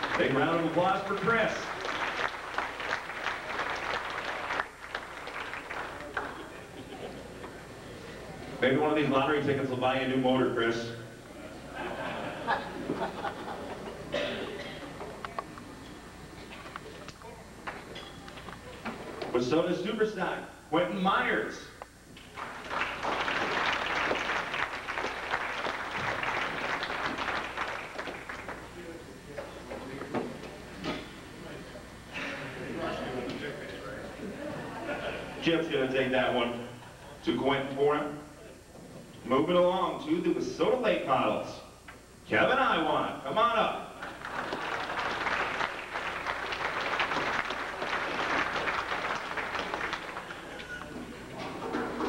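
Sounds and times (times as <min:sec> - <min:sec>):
audience applauding: 0:00.0 - 0:06.8, 0:22.2 - 0:29.0, 0:44.0 - 0:52.0.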